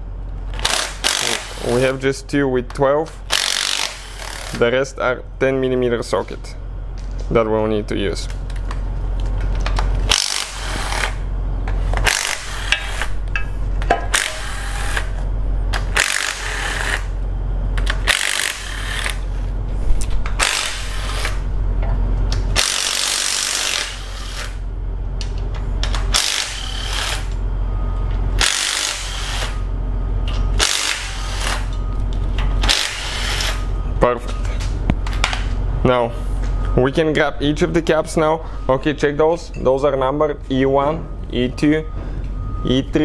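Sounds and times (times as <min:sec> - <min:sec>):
power tool spinning bolts: 0:00.5 - 0:01.9, 0:03.3 - 0:04.6, 0:10.0 - 0:11.2, 0:12.0 - 0:13.2, 0:14.1 - 0:17.1, 0:17.8 - 0:19.3, 0:20.4 - 0:21.4, 0:22.6 - 0:24.6, 0:25.8 - 0:27.4, 0:28.4 - 0:29.6, 0:30.6 - 0:31.8, 0:32.6 - 0:33.6.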